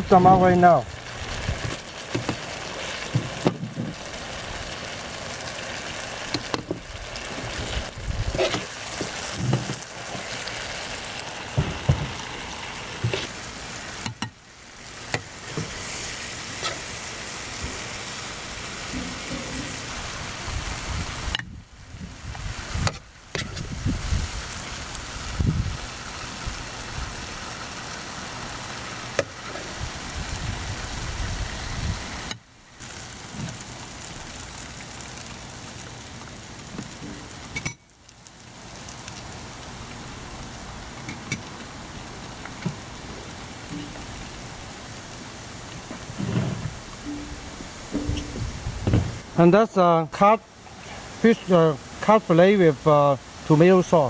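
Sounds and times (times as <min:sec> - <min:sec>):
sauce sizzling in a wok: 0:00.8 - 0:23.0, 0:23.7 - 0:46.2, 0:50.5 - 0:53.5
turner knocking and scraping: 0:45.9 - 0:49.2.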